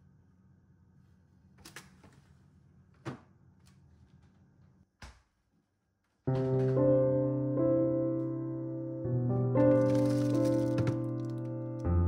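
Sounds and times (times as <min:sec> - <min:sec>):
piano music with held chords: 0:06.3 - 0:12.0.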